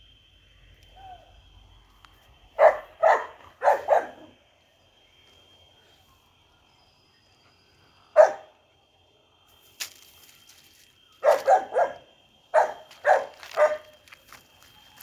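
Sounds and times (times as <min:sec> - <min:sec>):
dog barking: 0:02.6 - 0:04.3, 0:08.2 - 0:08.5, 0:11.2 - 0:13.9.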